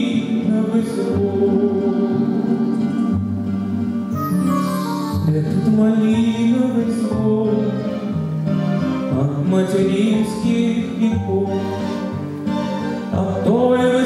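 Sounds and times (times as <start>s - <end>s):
man singing into a microphone: 0.0s - 2.6s, 4.2s - 8.3s, 9.0s - 12.0s, 13.0s - 14.0s
grand piano playing: 4.0s - 14.0s.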